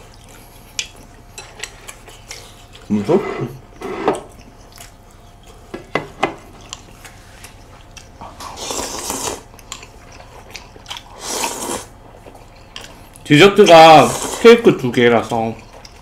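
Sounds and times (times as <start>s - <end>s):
slurping noodles and soup: 8.3s - 9.5s, 11.0s - 12.0s, 13.8s - 14.7s.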